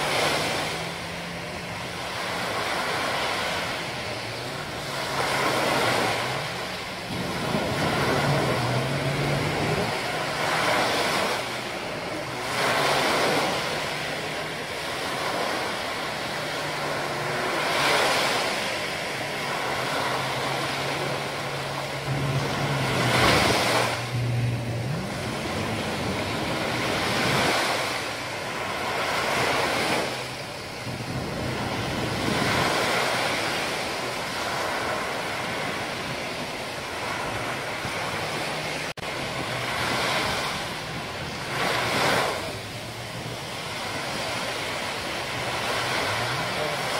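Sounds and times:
small waves breaking on beach: 0.0s - 46.9s
low steady hum: 18.7s - 29.0s.

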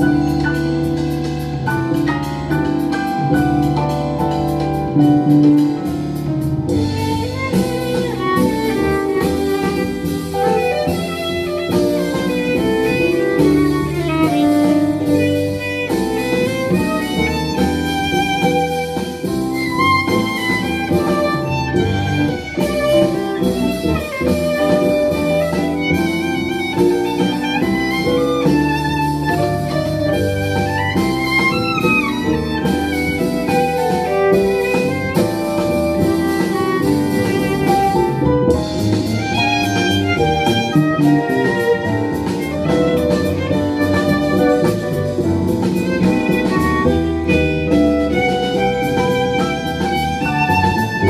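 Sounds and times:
plucked double bass: 0.0s - 51.0s
violin bowing melody: 4.9s - 51.0s.

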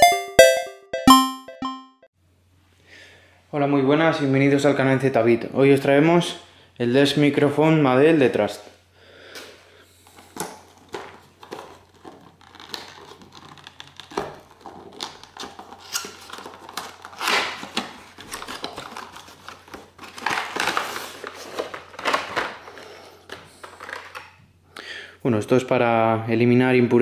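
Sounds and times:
packaging crinkling and rustling: 10.0s - 24.4s.

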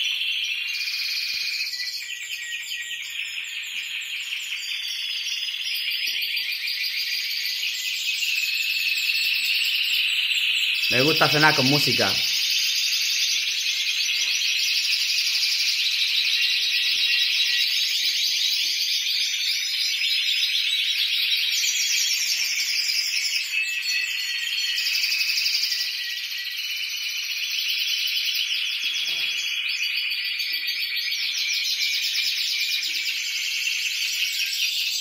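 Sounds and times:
canaries singing trills: 0.0s - 35.0s.

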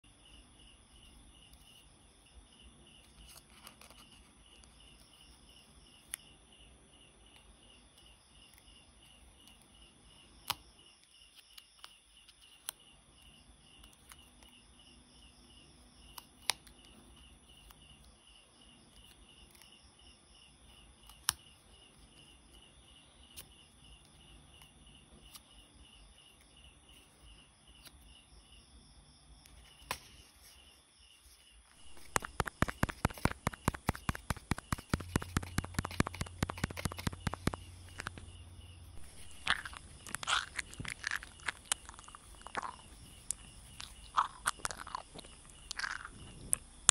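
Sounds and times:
cricket chirping: 0.0s - 46.9s
paper rustling and tapping: 31.7s - 38.3s.

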